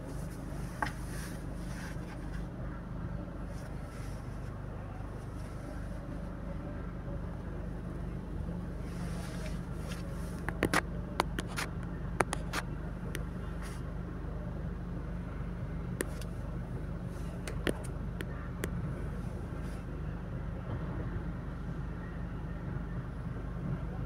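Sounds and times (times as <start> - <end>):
car cabin rumble: 0.0 - 13.9, 15.7 - 21.4.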